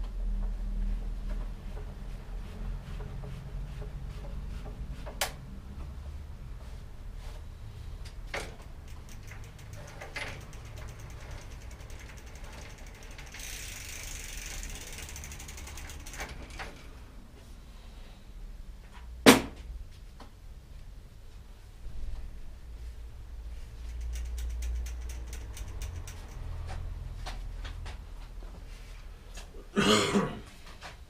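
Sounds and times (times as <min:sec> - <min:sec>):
bike wheel ratcheting clicks: 0:08.0 - 0:16.9, 0:23.8 - 0:28.0.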